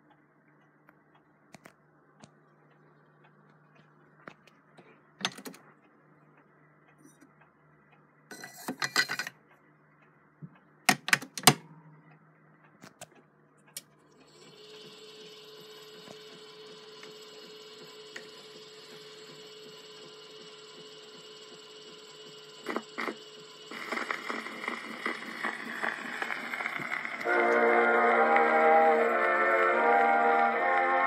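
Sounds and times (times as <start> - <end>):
spring motor hum and whine: 0.0 - 31.0
phonograph mechanism clicking: 10.8 - 12.0.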